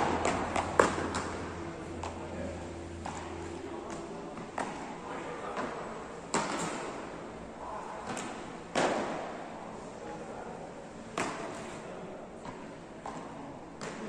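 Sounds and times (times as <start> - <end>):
paddles smacking ball: 0.0 - 2.2.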